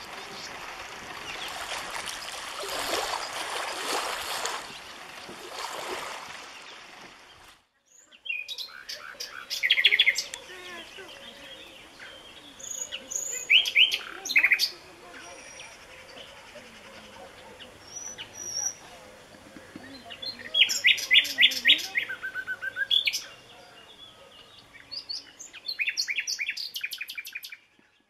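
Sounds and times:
stream rushing over pebbles: 0.0s - 7.7s
nightingale singing: 6.6s - 28.0s.

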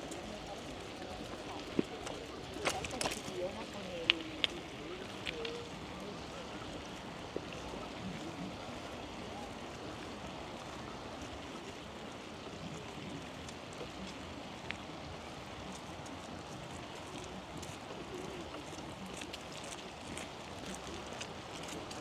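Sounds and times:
faint clicks: 0.0s - 6.8s.

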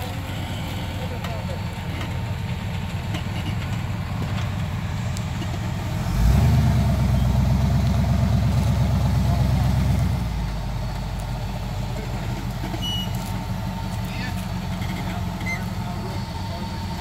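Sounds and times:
engine idling and revving: 0.0s - 17.0s.

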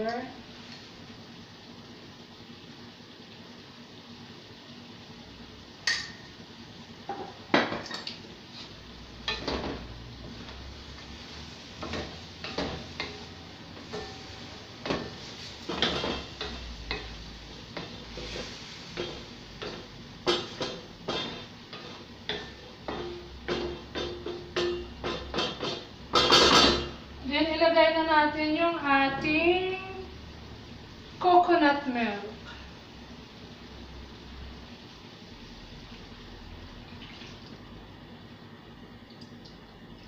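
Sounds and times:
wooden spatula scraping metal wok: 10.5s - 26.9s.

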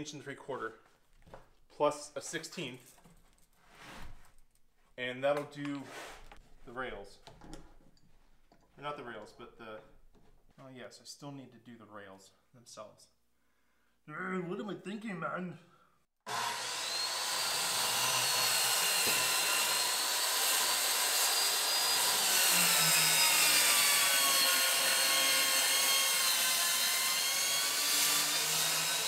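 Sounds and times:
circular saw cutting plywood: 16.3s - 29.0s.

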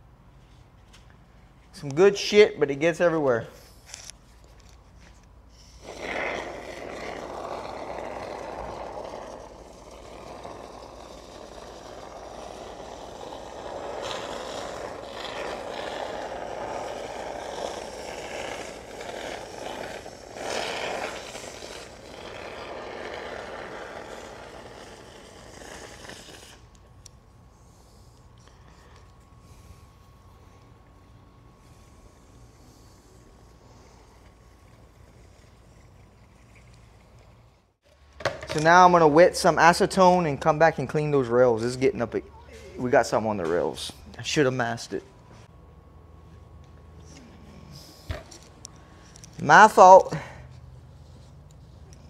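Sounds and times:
spray foam can hissing: 5.7s - 26.8s.

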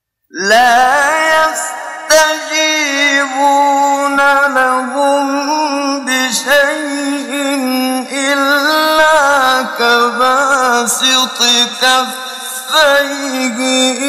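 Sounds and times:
man chanting melodic recitation: 0.3s - 14.0s.

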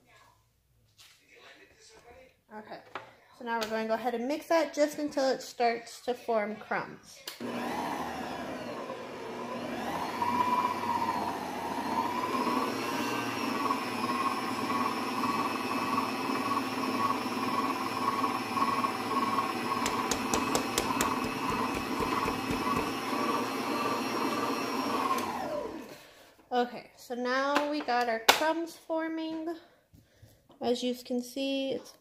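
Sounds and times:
electric mixer beating dough: 7.4s - 26.0s.

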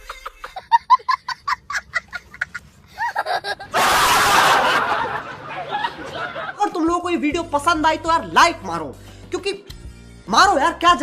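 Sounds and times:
young child laughing: 0.0s - 4.1s.

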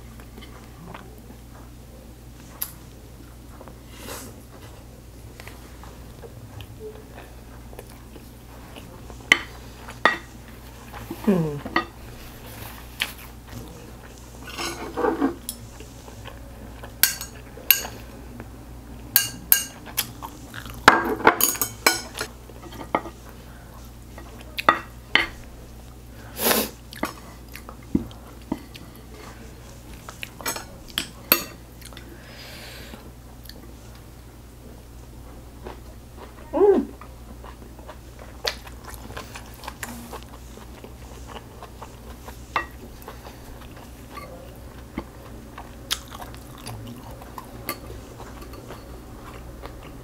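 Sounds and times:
chewing: 5.3s - 17.5s, 26.9s - 31.1s, 31.7s - 32.1s, 37.0s - 50.0s.

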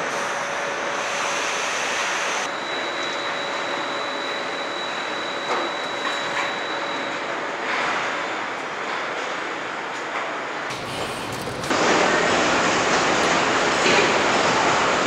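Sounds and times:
machinery hiss and hum: 10.6s - 15.0s.

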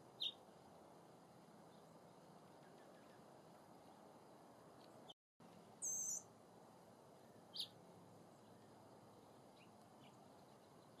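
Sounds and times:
bird chirps: 5.8s - 6.3s, 7.2s - 7.8s.

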